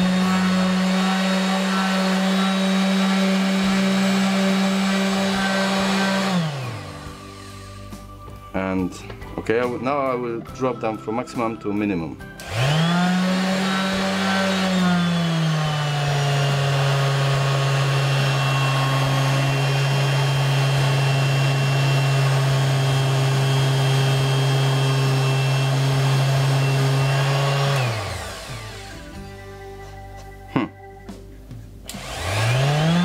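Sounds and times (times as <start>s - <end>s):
orbital sander motor whine: 0.0s - 8.1s, 12.4s - 29.5s, 31.9s - 33.0s.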